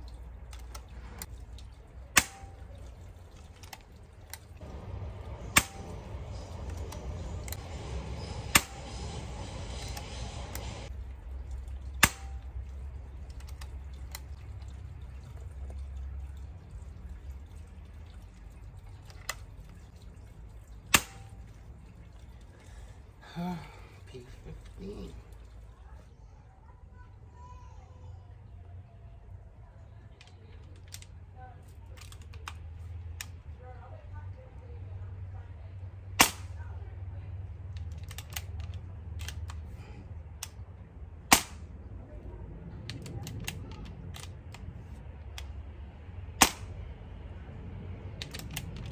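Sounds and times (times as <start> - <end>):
air rifle crack: 2.1 - 2.8, 3.6 - 10.9, 12.0 - 12.6, 20.9 - 21.4, 36.2 - 36.7, 41.3 - 41.8, 46.4 - 46.8
air rifle shot: 5.4 - 6.1, 8.5 - 9.1, 36.2 - 36.6, 41.3 - 41.7, 46.4 - 46.8.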